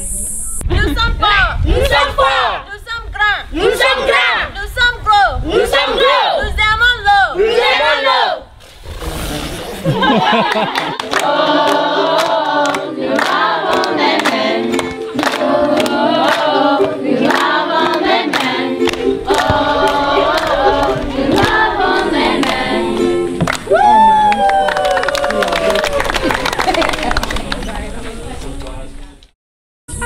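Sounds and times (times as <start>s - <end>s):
clapped beat: 10.5s - 27.7s
children singing in unison: 11.1s - 23.5s.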